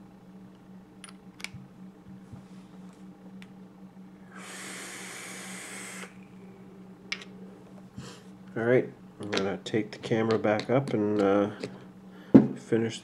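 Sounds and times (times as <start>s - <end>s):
low steady hum: 0.0s - 13.0s
steady hiss: 4.2s - 6.6s.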